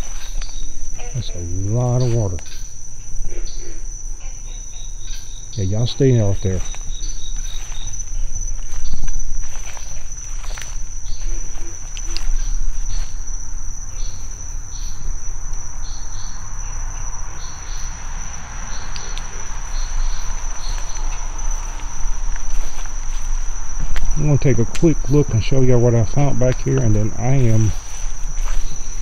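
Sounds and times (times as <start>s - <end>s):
footsteps: 0.0s - 1.3s, 5.8s - 13.4s, 18.9s - 29.0s
crickets chorus: 0.0s - 29.0s
plants brushing microphone: 20.3s - 29.0s.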